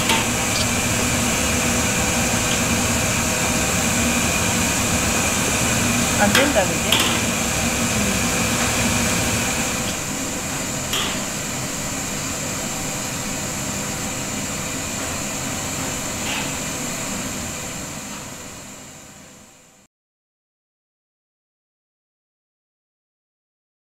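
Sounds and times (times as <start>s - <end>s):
high thin whine: 0.0s - 13.1s
room hum and hiss: 0.0s - 19.8s.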